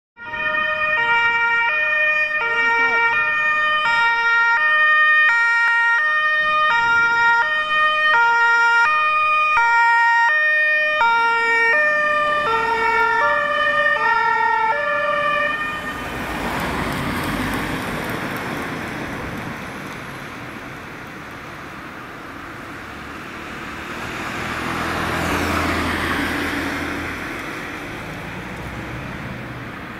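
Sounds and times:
two-tone emergency siren: 0:00.2 - 0:16.9
van engine: 0:14.0 - 0:29.9.

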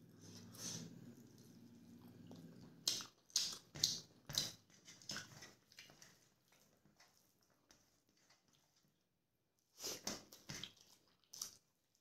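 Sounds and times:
wet chewing and lip-smacking: 0:01.2 - 0:06.8.

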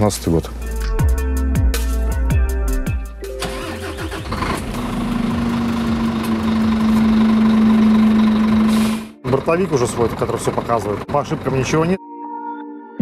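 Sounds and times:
diesel engine starting and running: 0:03.2 - 0:12.0.

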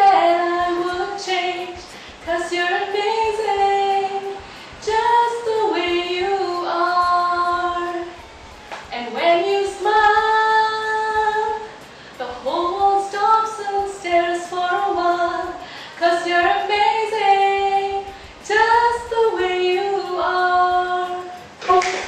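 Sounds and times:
woman singing unaccompanied: 0:00.0 - 0:22.0.

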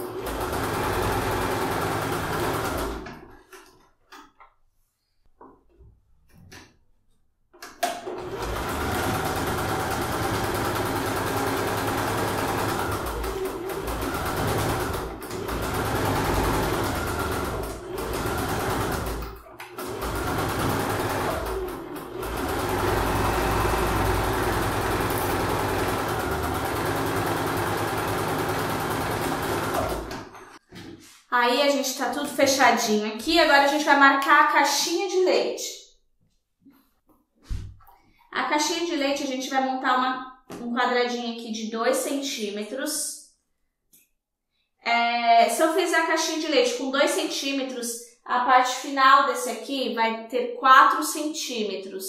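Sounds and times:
electric sewing machine stitching: 0:00.0 - 0:03.3, 0:07.8 - 0:30.6.

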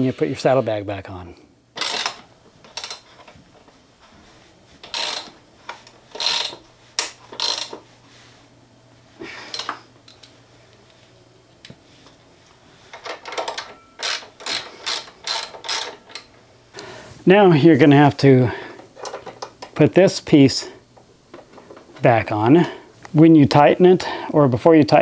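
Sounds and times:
ratchet wrench clicking: 0:01.8 - 0:03.0, 0:04.9 - 0:05.4, 0:06.1 - 0:07.8, 0:13.4 - 0:16.3.

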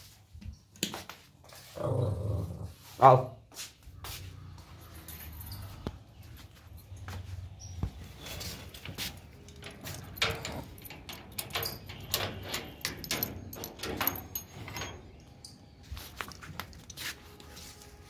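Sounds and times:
metal gate rattling and clanking: 0:04.7 - 0:06.1, 0:08.0 - 0:17.0
gate squeak: 0:08.2 - 0:15.5.

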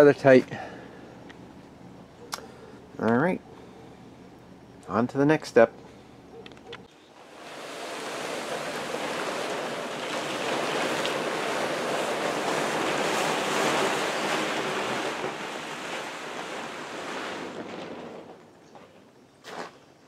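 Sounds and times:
plastic tarp rustling: 0:07.2 - 0:19.7.

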